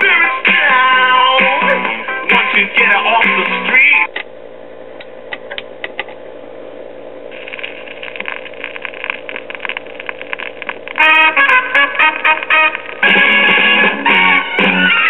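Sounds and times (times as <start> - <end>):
music from record player: 0.0 - 4.1, 7.4 - 15.0
steady hum: 0.0 - 15.0
stylus crackle on record: 7.3 - 15.0.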